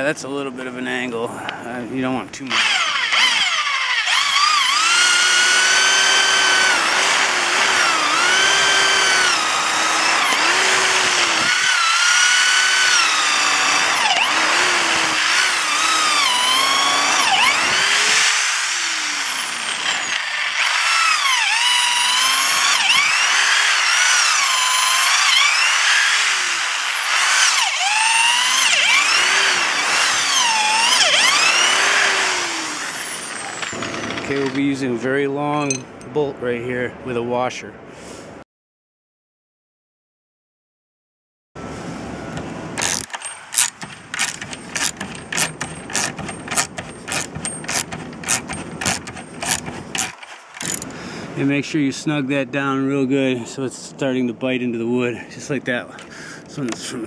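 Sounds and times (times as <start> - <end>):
power drill boring into wood: 2.5 - 34.7, 42.8 - 50.9.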